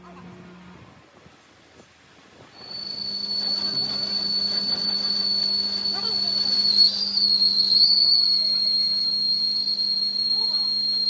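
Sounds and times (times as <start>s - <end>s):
low hum: 2.5s - 11.0s
metal lathe whine: 2.6s - 11.0s.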